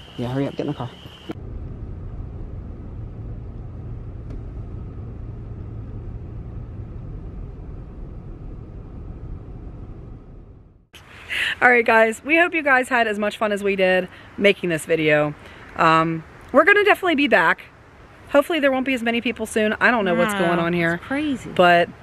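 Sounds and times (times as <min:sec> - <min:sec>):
car engine and tyres rumbling: 0:01.1 - 0:10.9.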